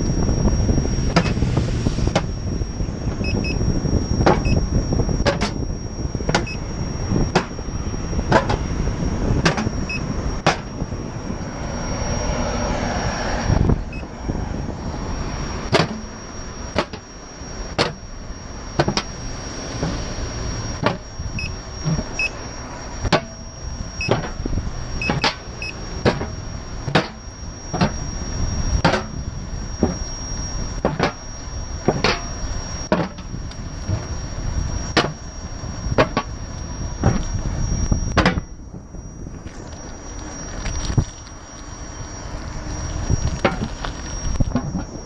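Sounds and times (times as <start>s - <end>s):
faint high whine: 0.0s - 45.0s
wind on microphone: 0.0s - 45.0s.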